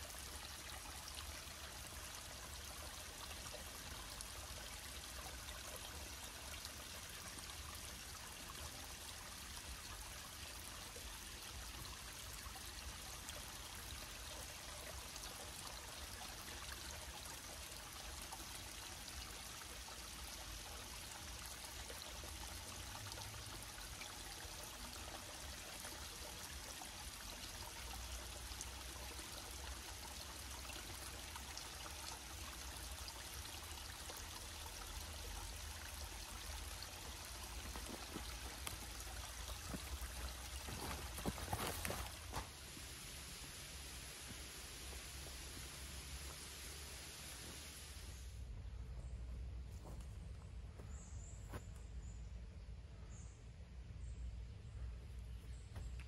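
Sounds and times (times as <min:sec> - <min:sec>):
stream water rushing: 0:28.4 - 0:48.0.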